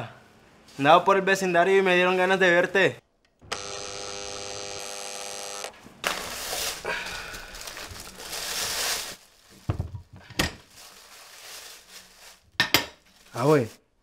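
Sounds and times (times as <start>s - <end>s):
intercom door buzzer: 3.4s - 5.8s
shuffling noise: 5.8s - 13.9s.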